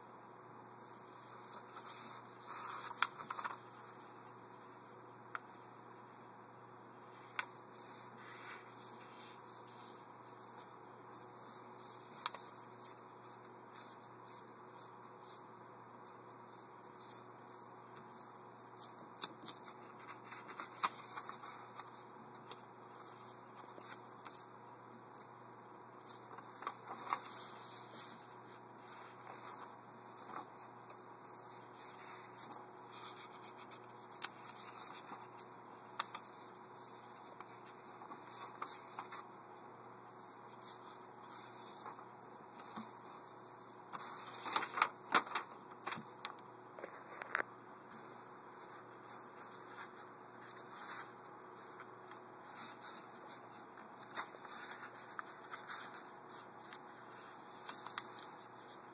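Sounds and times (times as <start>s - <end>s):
paper rustling and crinkling: 0.8s - 4.2s, 16.5s - 25.4s, 26.0s - 58.9s.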